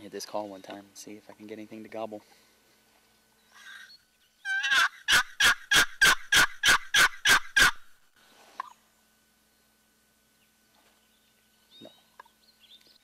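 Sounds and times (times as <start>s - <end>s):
turkey call yelps: 3.5s - 7.9s.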